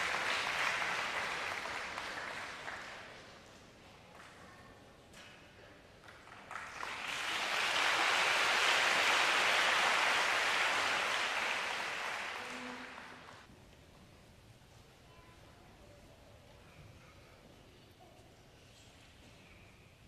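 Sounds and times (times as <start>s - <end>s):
audience applause: 0.0s - 3.2s, 6.2s - 13.5s.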